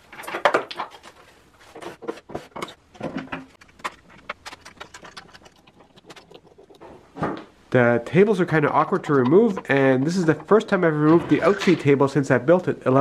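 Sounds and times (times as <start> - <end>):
tools clicking and knocking: 8.5 - 11.9.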